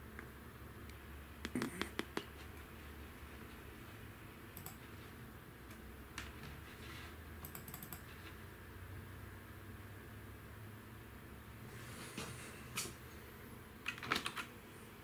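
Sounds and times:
keyboard keys clicking: 0:04.6 - 0:04.8, 0:07.4 - 0:08.0.

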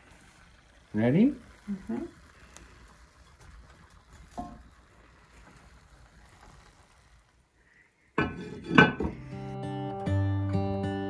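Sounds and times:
heavy lid clattering on pot: 0:08.2 - 0:09.2
acoustic guitar music: 0:08.6 - 0:11.0.

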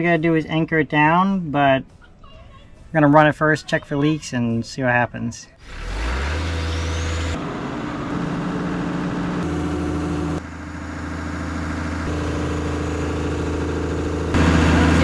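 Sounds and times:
excavator diesel engine idling: 0:07.4 - 0:15.0.

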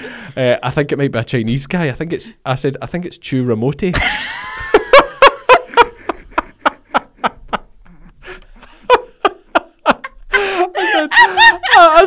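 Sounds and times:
man and woman laughing: 0:03.9 - 0:12.0.

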